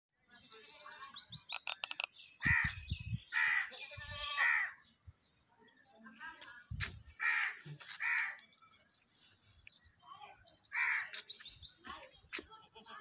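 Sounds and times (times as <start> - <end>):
high bird chirps: 0.1 - 4.0
harsh bird calls: 0.2 - 5.1, 7.2 - 12.4
sharp clicks: 1.5 - 2.1.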